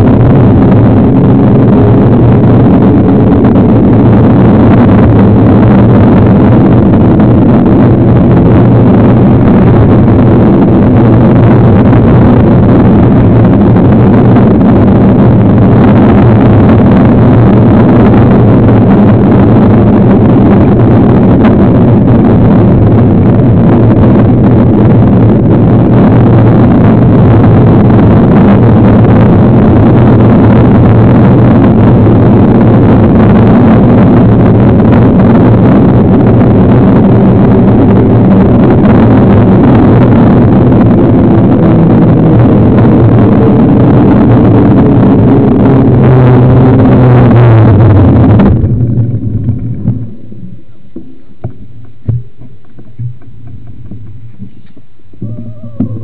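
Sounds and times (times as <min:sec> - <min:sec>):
low drone: 0:00.0 - 0:56.0
wind rush on microphone: 0:00.0 - 0:56.0
rolling noise: 0:46.9 - 0:56.0.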